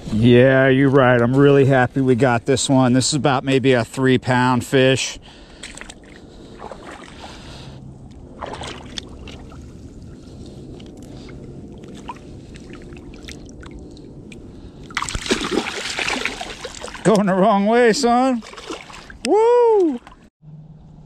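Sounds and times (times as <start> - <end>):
water sloshing: 5.5 - 19.3
fish splashing: 5.6 - 7.6, 8.2 - 10.2, 11.7 - 19.2.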